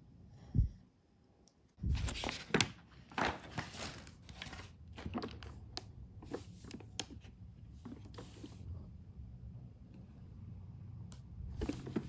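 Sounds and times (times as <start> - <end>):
packaging crinkling and rustling: 2.0 - 5.7.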